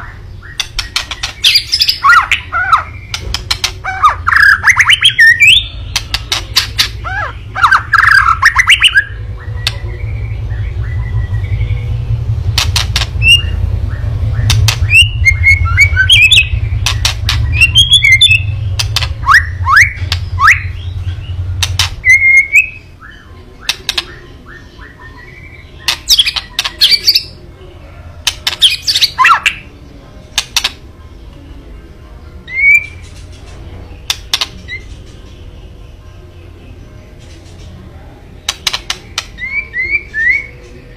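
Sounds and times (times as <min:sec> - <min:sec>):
bird harsh rattling calls: 0:00.4 - 0:09.0, 0:12.5 - 0:13.6, 0:15.8 - 0:22.7, 0:25.8 - 0:27.4.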